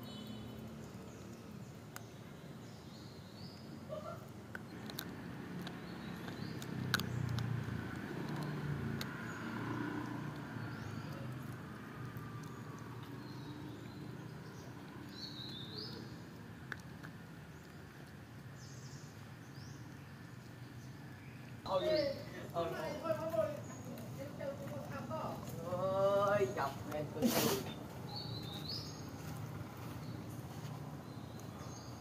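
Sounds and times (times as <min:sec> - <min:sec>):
birds chirping: 0:00.0 - 0:32.0
puppy chewing on a bone: 0:04.2 - 0:27.1.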